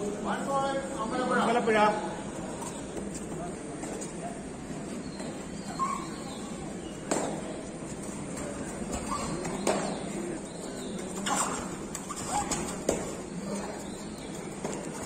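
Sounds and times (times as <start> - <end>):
murmur of hall: 0.0 - 15.0
short squeaks: 8.9 - 10.0, 11.1 - 12.8.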